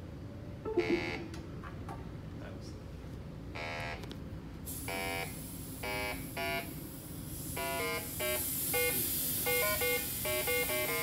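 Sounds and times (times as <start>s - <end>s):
leak detector beeping: 0.7s - 1.4s, 7.6s - 11.0s
hiss of escaping gas: 6.9s - 10.9s.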